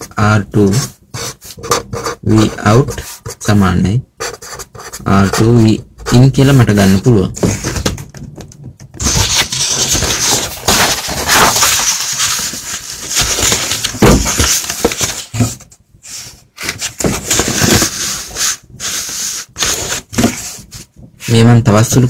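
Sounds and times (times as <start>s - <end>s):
rustling handling noise: 7.3s - 21.5s.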